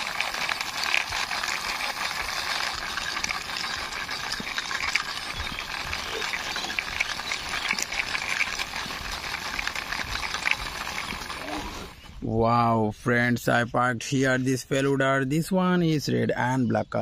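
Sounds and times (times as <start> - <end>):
plastic toy wheels rolling on concrete: 0.0 - 12.2.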